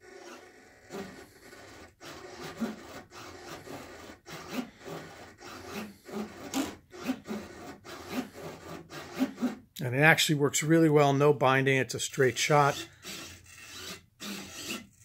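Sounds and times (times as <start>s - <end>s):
servo whirring: 12.4s - 15.0s.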